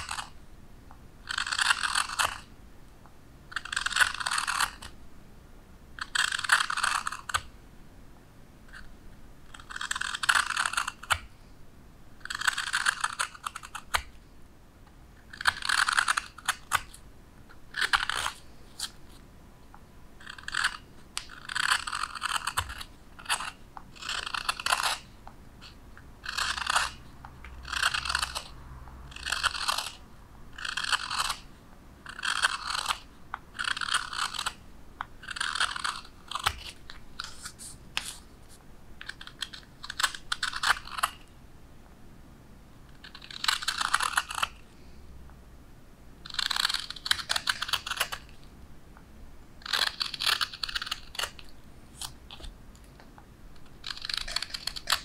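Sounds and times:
knife scraping wood: 0:01.3 - 0:02.5, 0:03.5 - 0:05.0, 0:09.5 - 0:11.2, 0:12.2 - 0:14.0, 0:17.7 - 0:19.2, 0:20.2 - 0:27.0, 0:27.6 - 0:28.5, 0:29.1 - 0:30.0, 0:30.6 - 0:34.6, 0:35.2 - 0:41.2, 0:46.3 - 0:48.3, 0:49.6 - 0:52.5, 0:53.6 - 0:55.0.

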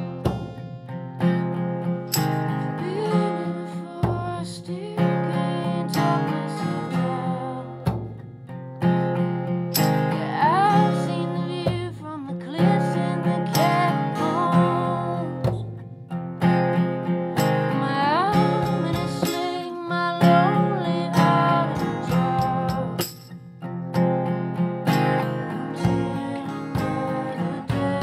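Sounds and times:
acoustic guitars strumming: 0:00.0 - 0:28.0
small drum struck with stick: 0:00.2 - 0:00.8.

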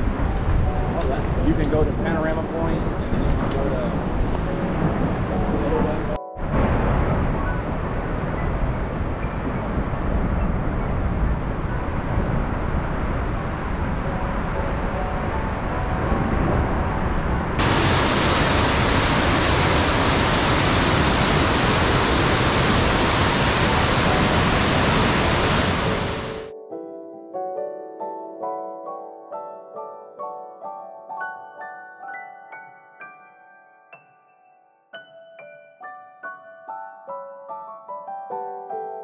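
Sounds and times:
waterfall roaring: 0:17.6 - 0:26.5.

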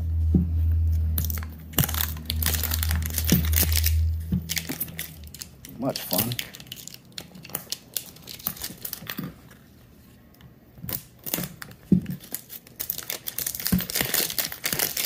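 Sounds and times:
plastic wrap crinkling and tearing: 0:01.2 - 0:09.6, 0:10.9 - 0:15.0.

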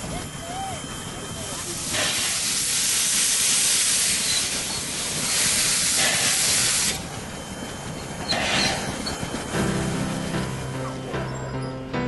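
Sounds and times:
steam locomotive hissing steam: 0:00.1 - 0:07.2, 0:08.2 - 0:09.2.

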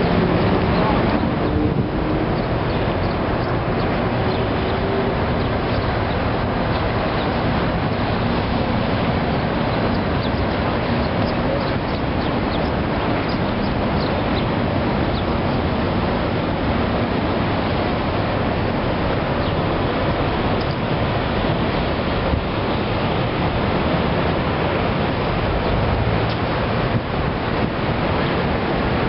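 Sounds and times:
river water: 0:00.0 - 0:29.0
wind on microphone: 0:00.0 - 0:29.0.

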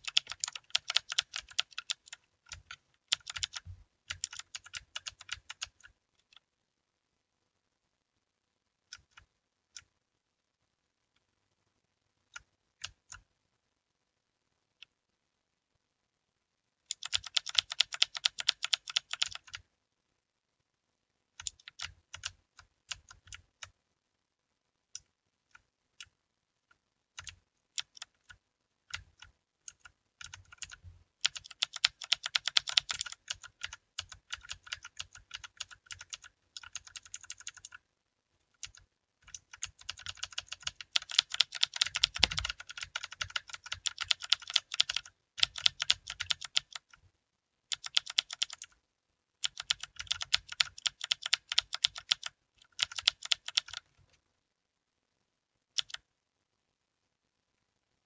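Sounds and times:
mechanical keyboard typing: 0:00.0 - 0:06.4, 0:16.9 - 0:19.6, 0:21.4 - 0:23.8, 0:27.2 - 0:37.8, 0:38.6 - 0:47.0, 0:47.7 - 0:48.8, 0:49.4 - 0:53.9, 0:55.8 - 0:56.1.

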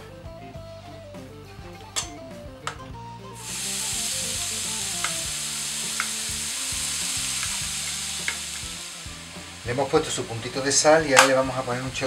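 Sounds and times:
vegetables frying in oil: 0:03.4 - 0:12.0.

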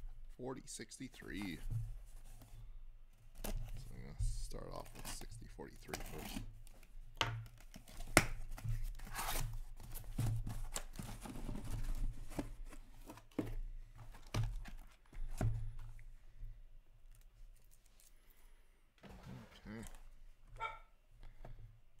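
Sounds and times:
boxes being handled: 0:00.0 - 0:16.4
tape and cardboard being torn: 0:07.4 - 0:09.6.

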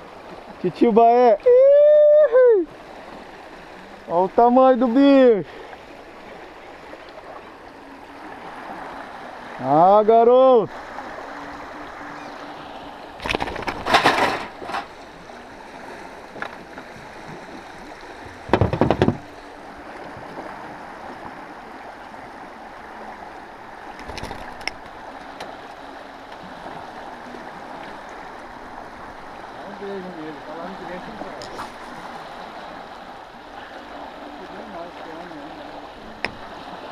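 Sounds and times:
river water rushing: 0:00.0 - 0:36.9
knocks and rattles on boat: 0:13.2 - 0:15.0, 0:18.1 - 0:20.2, 0:23.8 - 0:25.6, 0:36.1 - 0:36.9.

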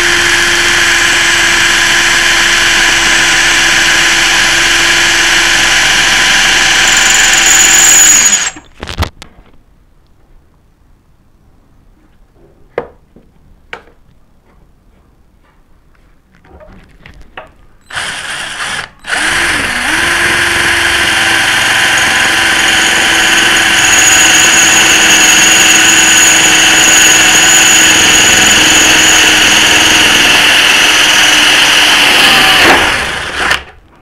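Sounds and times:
drill whining through metal: 0:00.0 - 0:08.7, 0:17.8 - 0:33.8.

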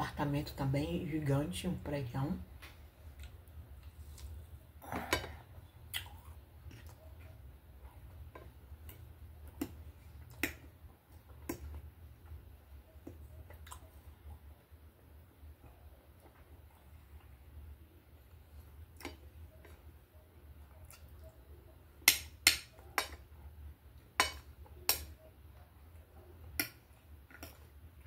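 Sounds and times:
chewing: 0:03.1 - 0:11.8, 0:12.9 - 0:14.1, 0:20.6 - 0:21.5, 0:25.9 - 0:27.8.

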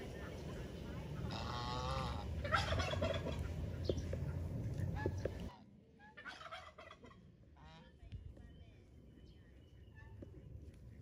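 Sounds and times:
fowl calling: 0:01.2 - 0:03.9.

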